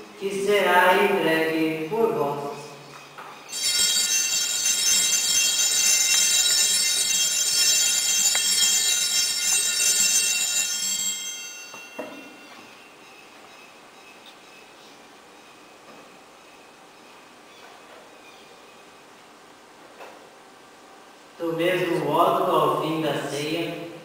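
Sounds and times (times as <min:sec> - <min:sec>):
altar bells ringing: 0:03.4 - 0:13.3.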